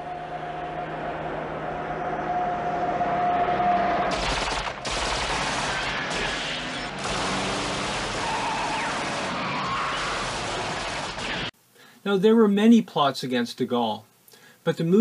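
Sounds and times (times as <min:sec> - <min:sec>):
car engine running: 0:00.0 - 0:08.2
automatic gunfire: 0:04.1 - 0:08.2.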